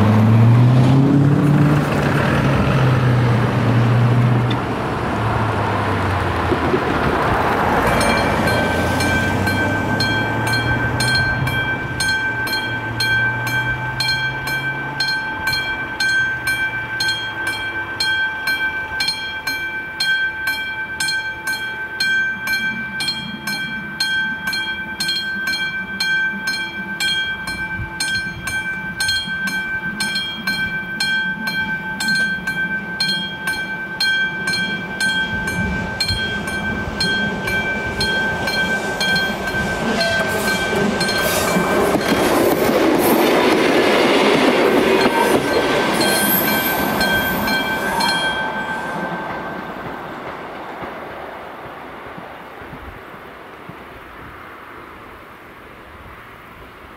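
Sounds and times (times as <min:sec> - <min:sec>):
train rumble: 0:00.0 - 0:56.9
level crossing bell ringing: 0:07.8 - 0:42.5, 0:44.4 - 0:49.8.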